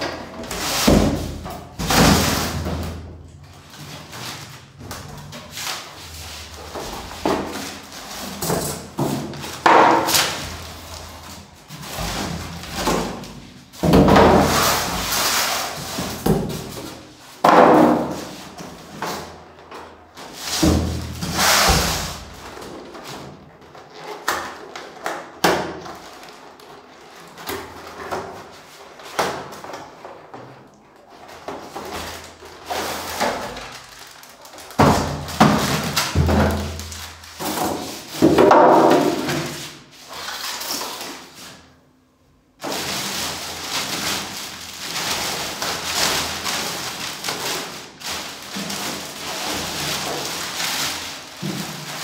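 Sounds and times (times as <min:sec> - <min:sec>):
plastic wrap crinkling: 0:31.0 - 0:41.7, 0:42.6 - 0:52.0.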